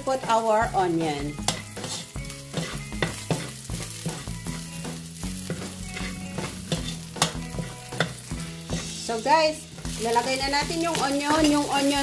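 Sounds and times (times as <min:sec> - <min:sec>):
garlic sizzling in hot oil: 0:00.0 - 0:12.0
spatula scraping a pan: 0:01.3 - 0:09.2.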